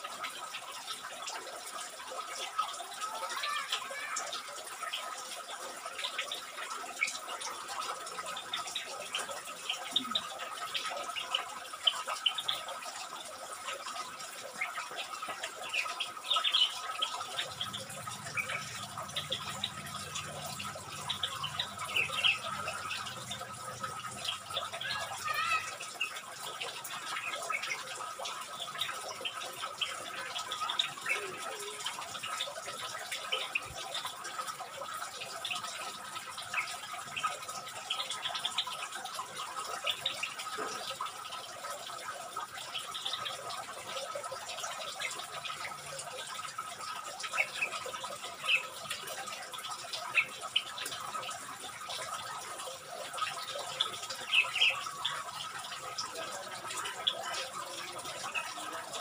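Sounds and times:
birds chirping and calling: 0:13.9 - 0:41.0, 0:47.2 - 0:59.0.

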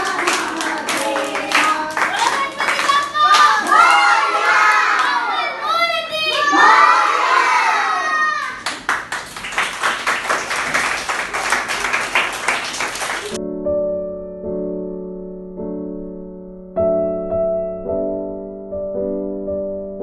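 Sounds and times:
hand clapping: 0:00.0 - 0:04.1, 0:08.5 - 0:13.4
children and women singing: 0:00.0 - 0:04.9
soft electric piano music: 0:13.3 - 0:20.0.

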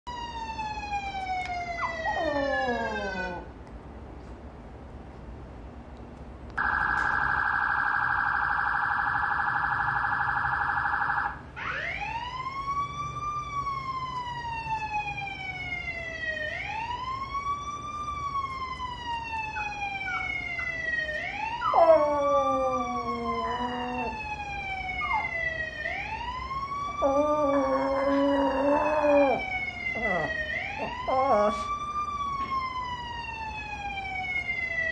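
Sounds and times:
emergency vehicle siren: 0:00.0 - 0:03.5, 0:06.6 - 0:34.9
dog howling: 0:01.8 - 0:03.5, 0:21.6 - 0:24.3, 0:26.9 - 0:31.7.

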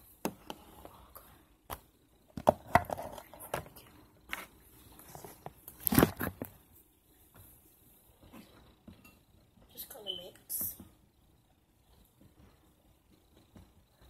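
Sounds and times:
camera rustling scrape: 0:04.3 - 0:06.5.

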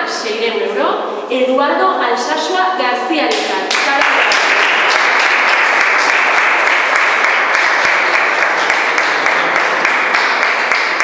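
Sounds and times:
audience applauding: 0:03.3 - 0:11.0.

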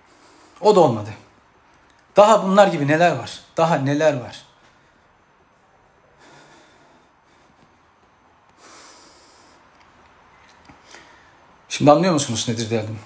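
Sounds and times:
man breathing: 0:00.0 - 0:00.6, 0:04.6 - 0:09.9, 0:10.7 - 0:11.7.

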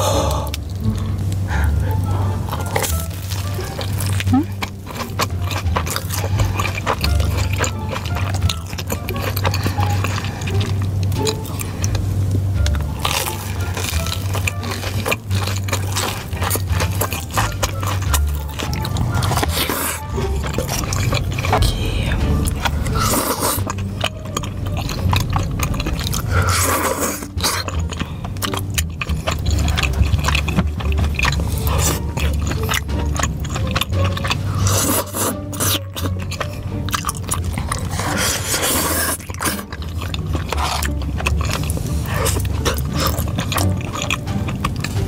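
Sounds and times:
chewing soft food: 0:00.0 - 0:45.0
wet mouth smacking: 0:12.6 - 0:45.0.

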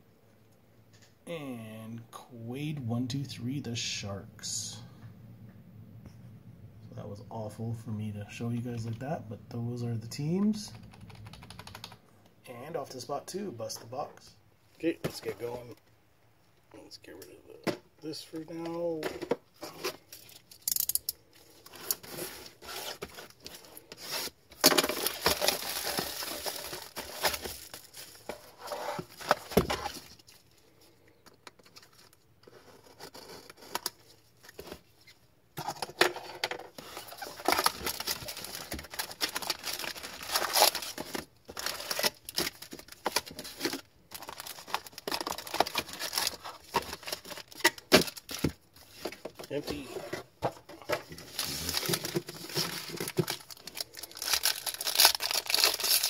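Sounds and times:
shrink wrap crinkling: 0:19.6 - 0:30.9, 0:36.8 - 0:50.0, 0:50.9 - 0:56.0
foil packs rustling: 0:21.5 - 0:30.6, 0:36.8 - 0:56.0.

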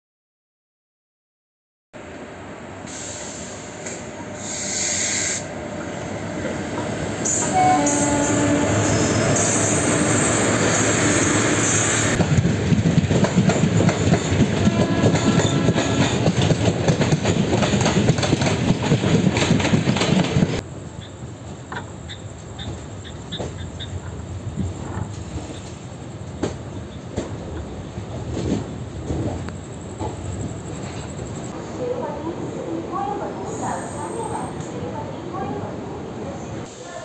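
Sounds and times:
train wheels clacking on rails: 0:03.8 - 0:31.6.

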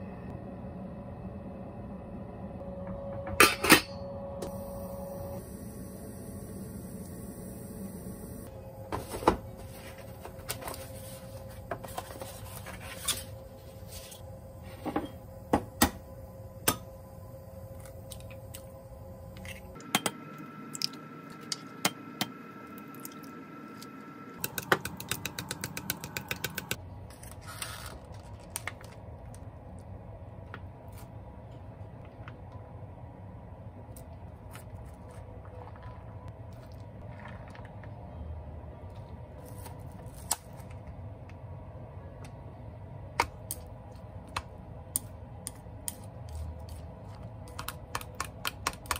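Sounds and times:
low hum: 0:00.0 - 0:27.4.

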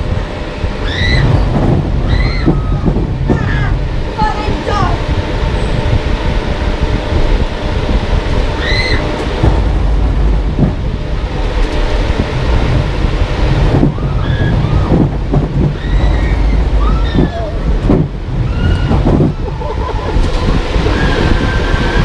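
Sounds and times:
train rumbling: 0:00.0 - 0:22.0
short wavering cries: 0:00.8 - 0:05.0, 0:08.5 - 0:09.2, 0:15.7 - 0:20.1.

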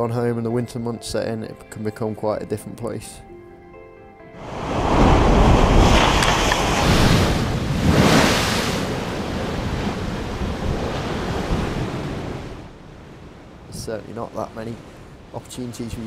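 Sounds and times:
wind buffeting microphone: 0:04.4 - 0:16.0
waves breaking against seawall: 0:04.5 - 0:12.6.

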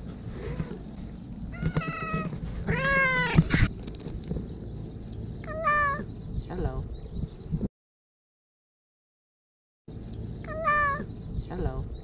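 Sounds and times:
cat meowing: 0:01.5 - 0:03.5, 0:05.5 - 0:06.1, 0:10.5 - 0:11.1.

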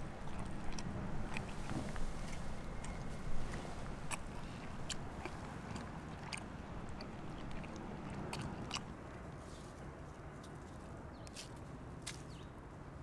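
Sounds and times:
dog chewing and crunching: 0:00.0 - 0:09.0.

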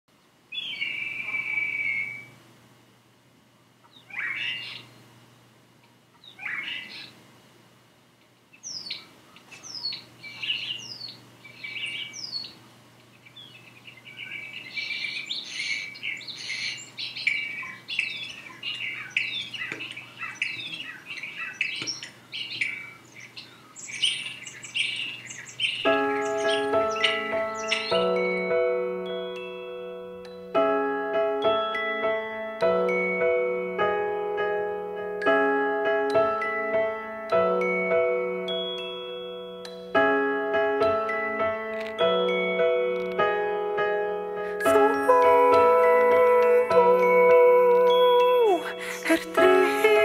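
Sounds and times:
starlings whistling and chirping: 0:00.5 - 0:02.4, 0:03.9 - 0:05.0, 0:06.2 - 0:07.1, 0:08.6 - 0:12.6, 0:13.2 - 0:28.6.

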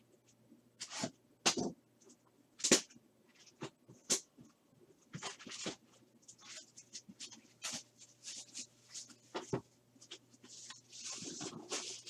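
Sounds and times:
plastic wrap crinkling: 0:10.1 - 0:12.0.

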